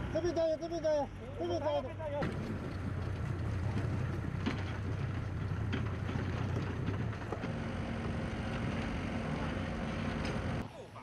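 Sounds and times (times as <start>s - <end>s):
excavator engine humming: 2.2s - 10.6s
motorboat engine droning: 2.2s - 10.6s.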